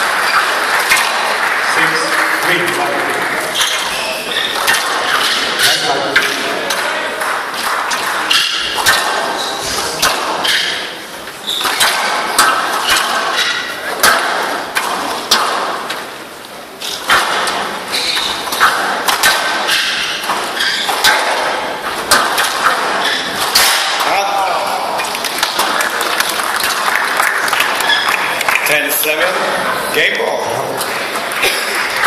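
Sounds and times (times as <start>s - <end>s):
squash ball cracking off rackets: 0.0s - 28.6s
shoes squeaking on court floor: 0.2s - 1.2s, 2.4s - 6.3s, 7.8s - 13.8s, 16.8s - 23.8s, 27.8s - 28.4s.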